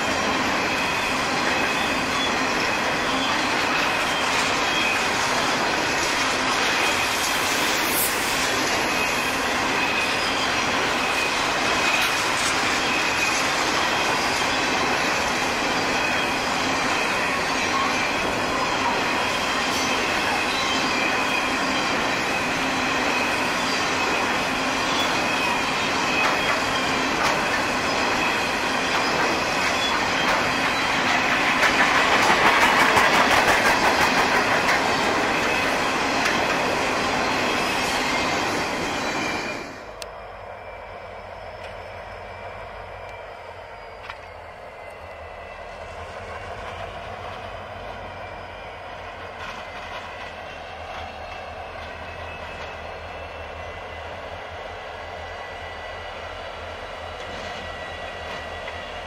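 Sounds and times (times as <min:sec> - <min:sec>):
freight wagons rumbling on rails: 0:00.0 - 0:59.0.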